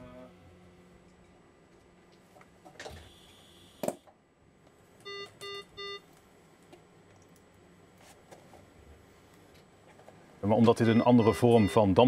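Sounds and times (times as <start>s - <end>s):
medical equipment alarm beeps: 5.0s - 6.1s, 10.7s - 12.0s.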